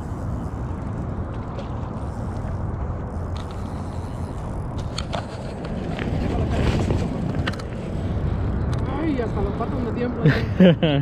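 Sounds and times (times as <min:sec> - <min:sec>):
wind buffeting microphone: 0:00.0 - 0:10.3.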